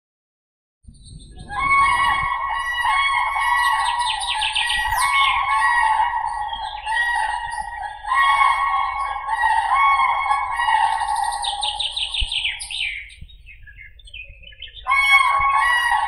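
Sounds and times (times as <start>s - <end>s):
cranes trumpeting calls: 1.5s - 13.1s, 14.8s - 16.0s.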